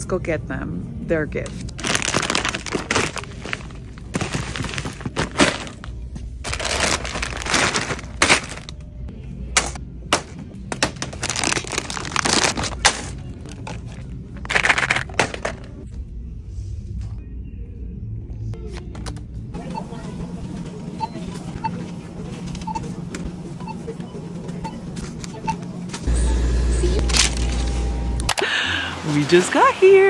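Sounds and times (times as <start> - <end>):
plastic bags crinkling: 1.7 - 8.8, 10.9 - 15.5
items knocking into plastic basket: 1.8 - 5.9, 6.5 - 8.8, 9.6 - 15.7.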